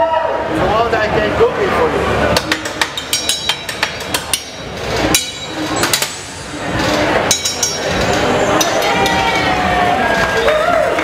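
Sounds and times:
steel hand tools clinking: 0:02.6 - 0:06.4, 0:07.0 - 0:09.6.

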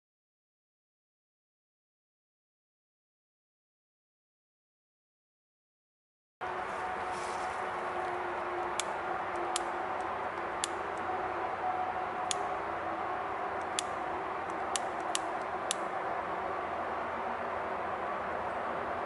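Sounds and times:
faint hum: 0:06.4 - 0:19.0
sharp clicks: 0:08.0 - 0:11.1, 0:13.6 - 0:15.9.

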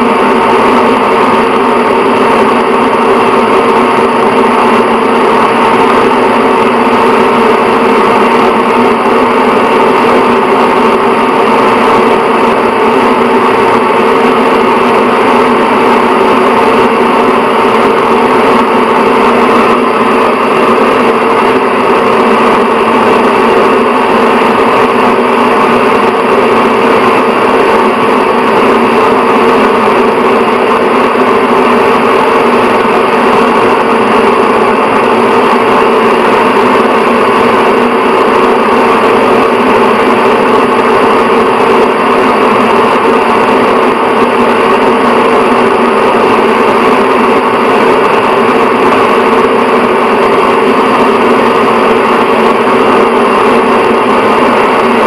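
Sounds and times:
exhaust fan running: 0:00.0 - 0:55.0.

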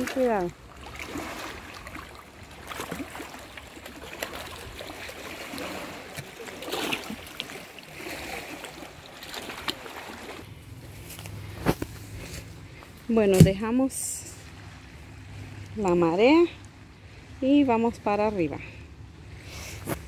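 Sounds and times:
small waves lapping on rocks: 0:00.0 - 0:20.0.

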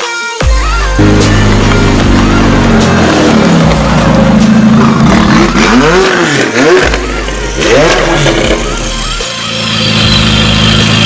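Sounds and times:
car engine revving: 0:00.6 - 0:11.0.

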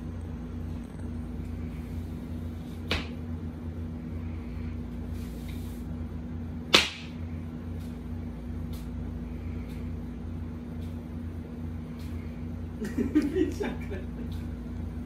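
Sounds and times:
steady low hum: 0:00.0 - 0:15.0
sharp snap: 0:06.7 - 0:07.2.

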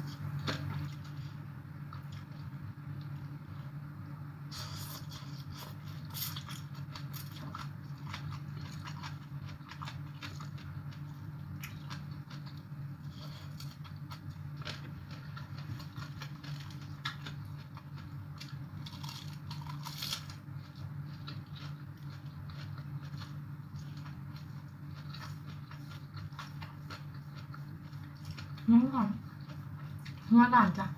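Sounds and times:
steady low hum: 0:00.0 - 0:30.9
person chewing crunchy food: 0:04.5 - 0:30.3.

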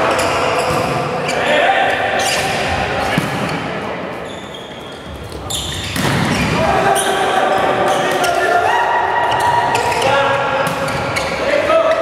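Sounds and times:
players' voices: 0:00.0 - 0:12.0
shoes squeaking: 0:04.2 - 0:07.2.

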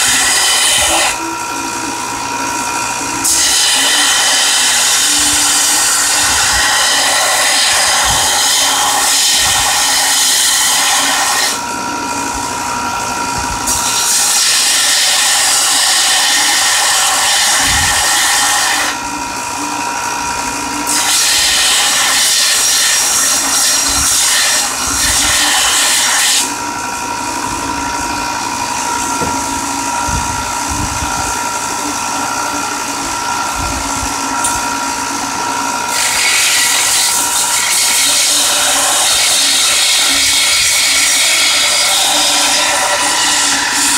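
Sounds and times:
blade grinding on belt: 0:00.0 - 0:01.3, 0:03.2 - 0:11.6, 0:13.6 - 0:19.0, 0:20.9 - 0:26.6, 0:35.8 - 0:43.9
grinder motor whine: 0:00.0 - 0:43.9.

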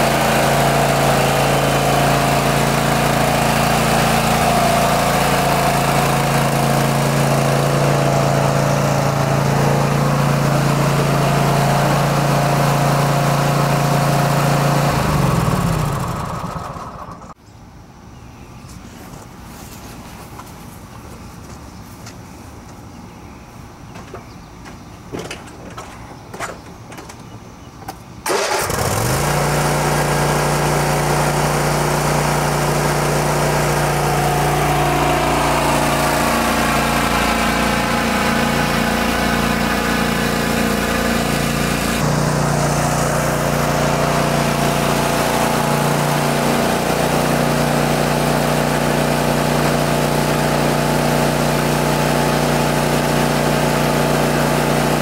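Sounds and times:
mower engine running: 0:00.0 - 0:17.4, 0:28.2 - 0:55.0.

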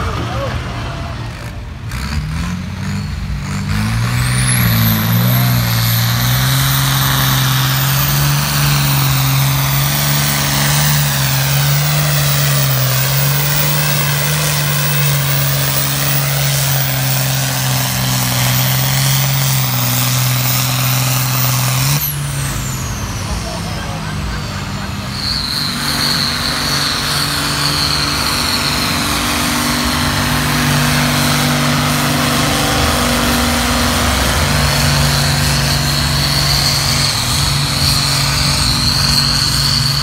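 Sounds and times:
tractor diesel engine under load: 0:00.0 - 0:40.0.

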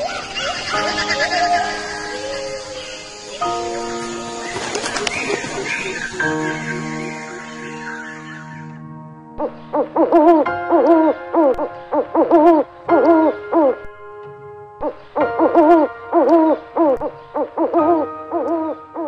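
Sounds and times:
owl hooting: 0:00.0 - 0:08.8, 0:09.4 - 0:13.8, 0:14.8 - 0:19.0.

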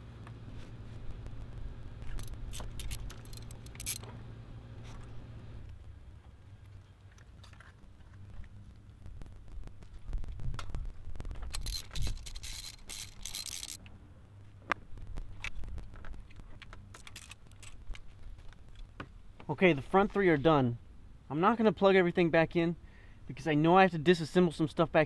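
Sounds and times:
metal tools clinking and scraping: 0:02.2 - 0:04.1.

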